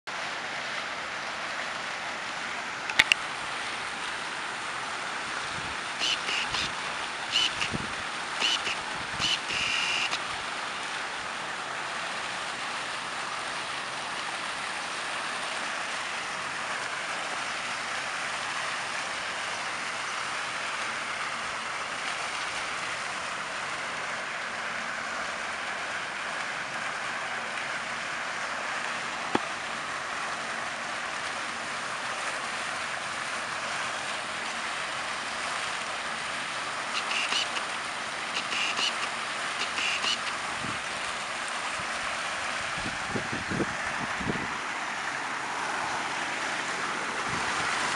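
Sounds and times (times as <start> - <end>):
fountain water splashing: 0.1 - 47.9
high-pitched chirps: 37.0 - 37.6.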